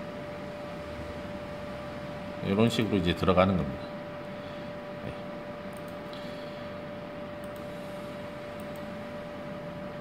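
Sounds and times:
steady room hum: 0:00.0 - 0:10.0
computer mouse clicks: 0:05.7 - 0:06.2, 0:07.4 - 0:07.7, 0:08.6 - 0:08.9.

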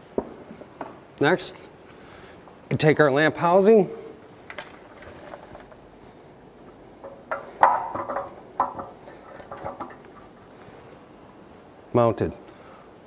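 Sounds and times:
metal light housing knocking: 0:07.0 - 0:10.1.

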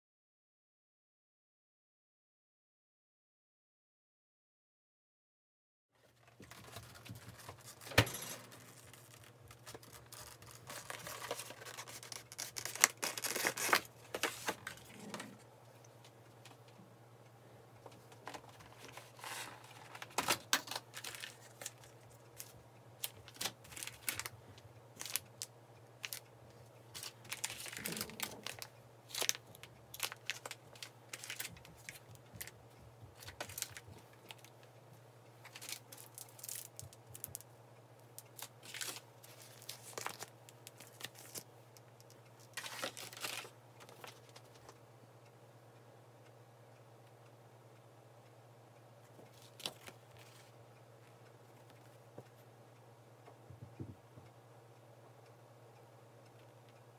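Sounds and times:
plastic packaging crinkling: 0:06.1 - 0:15.2, 0:18.3 - 0:24.4, 0:25.0 - 0:26.2, 0:26.9 - 0:32.5, 0:33.2 - 0:34.5, 0:35.5 - 0:37.4, 0:38.4 - 0:41.5, 0:42.4 - 0:44.7.

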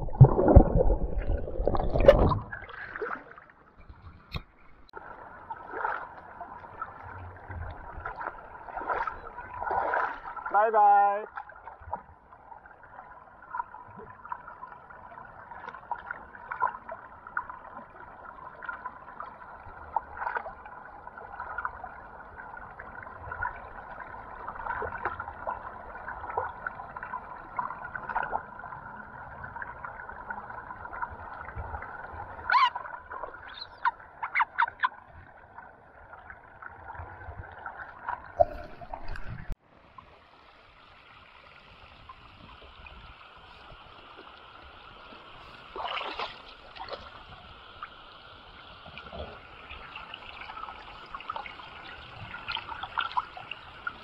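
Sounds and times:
water splashing: 0:00.0 - 0:11.7, 0:36.6 - 0:39.6, 0:40.2 - 0:54.0
river water gurgling and lapping: 0:00.0 - 0:54.0
hissy stream: 0:38.2 - 0:54.0.

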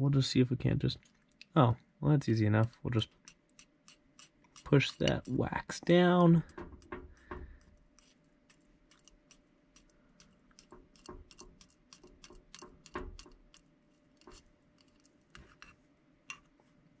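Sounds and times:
metal fork scraping glass jar: 0:03.2 - 0:05.4, 0:08.0 - 0:13.3.

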